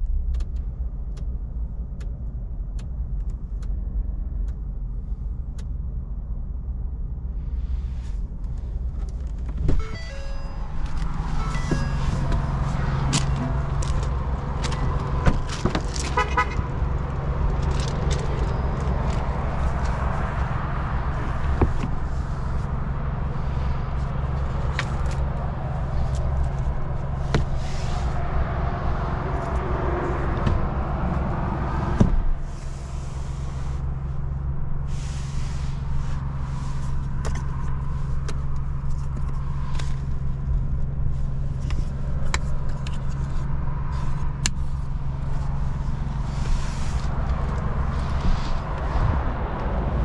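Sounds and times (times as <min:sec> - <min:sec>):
truck engine idling hum: 0:00.0 - 0:50.0.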